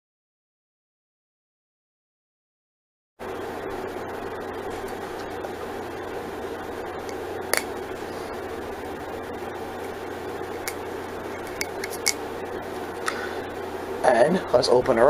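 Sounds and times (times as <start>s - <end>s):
low hum and hiss: 3.2s - 15.0s
sharp clicks and taps: 10.6s - 10.8s, 11.5s - 12.2s.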